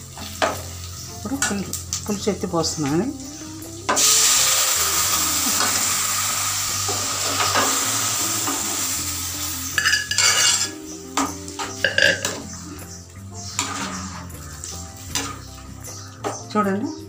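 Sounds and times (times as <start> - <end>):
chicken sizzling in hot oil: 0.0 - 16.5
metal ladle scraping a pot: 9.8 - 15.6.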